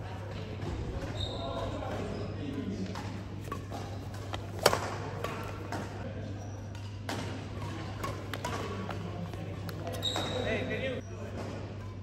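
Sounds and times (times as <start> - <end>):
rackets hitting shuttlecock: 2.8 - 6.0, 6.6 - 10.5.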